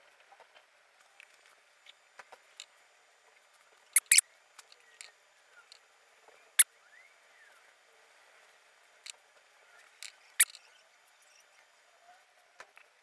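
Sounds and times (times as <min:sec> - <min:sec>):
sharp clicks: 0:04.0 - 0:05.1, 0:10.4 - 0:10.6.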